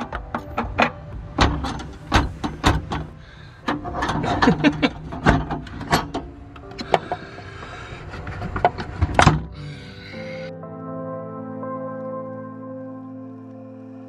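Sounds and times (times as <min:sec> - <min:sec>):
metal clicks and clatter: 0:00.0 - 0:06.3.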